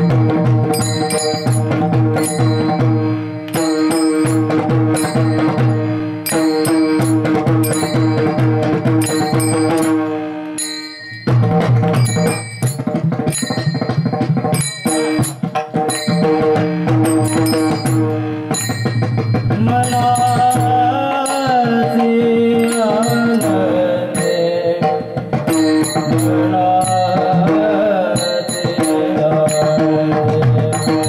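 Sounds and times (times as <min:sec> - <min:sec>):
hand cymbals clashing: 0:00.0 - 0:31.0
steady held notes: 0:00.0 - 0:31.0
barrel drum strokes: 0:11.2 - 0:20.9
man singing: 0:19.5 - 0:31.0.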